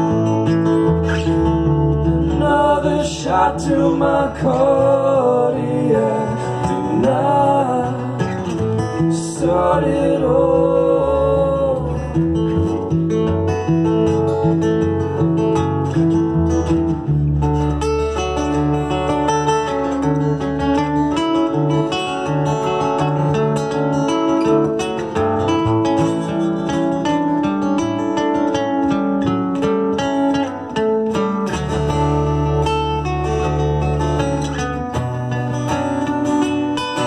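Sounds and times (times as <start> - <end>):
acoustic guitars playing: 0.0 - 37.0
person singing: 2.2 - 12.5.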